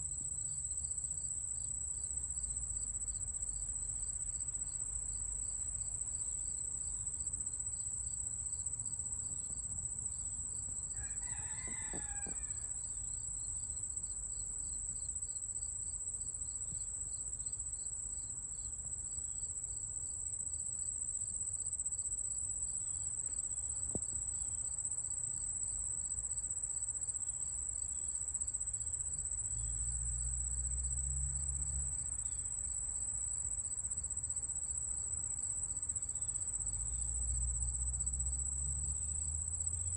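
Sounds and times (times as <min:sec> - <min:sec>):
insect trill: 0:00.0 - 0:39.9
rooster crowing: 0:10.9 - 0:12.9.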